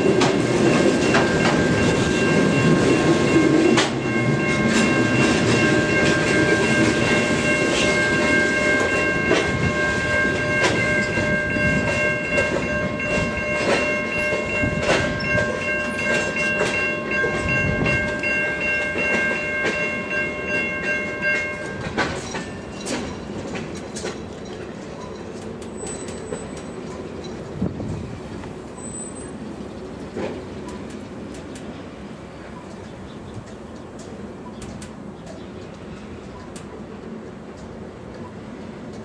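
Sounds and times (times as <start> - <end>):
wheels clicking over rail joints: 0.0 - 39.0.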